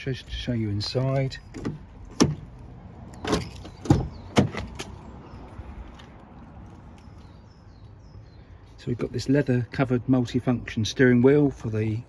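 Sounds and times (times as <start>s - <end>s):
car door handle and latch clicks: 1.5s - 4.9s.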